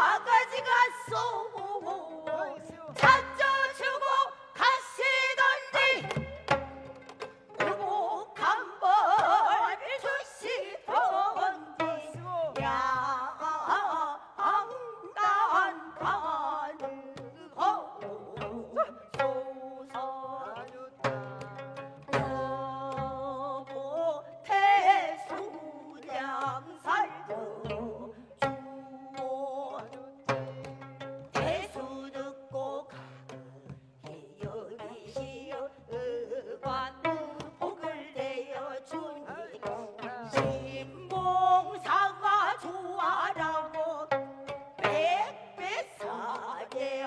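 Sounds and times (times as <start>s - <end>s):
women singing with vibrato: 0.0s - 47.0s.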